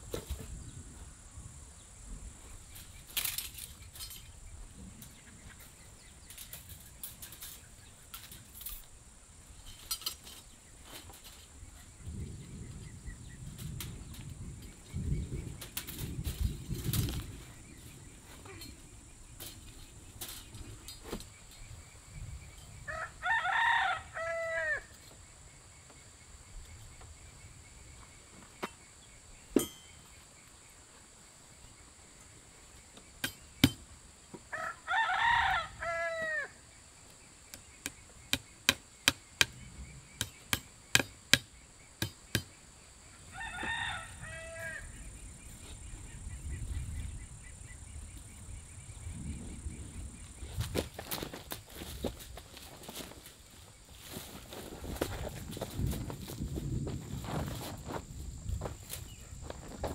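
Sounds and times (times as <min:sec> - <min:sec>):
rooster crowing: 0:22.9 - 0:24.9, 0:34.5 - 0:36.6, 0:43.2 - 0:45.0.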